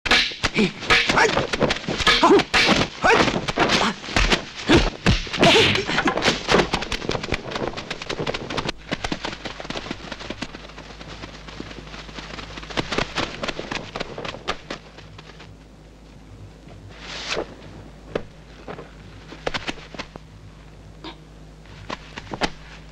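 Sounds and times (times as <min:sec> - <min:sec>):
fight clacks and knocks: 0:00.1 - 0:10.6.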